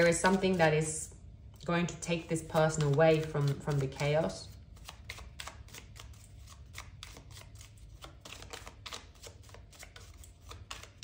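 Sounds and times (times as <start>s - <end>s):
cards being shuffled: 2.3s - 11.0s.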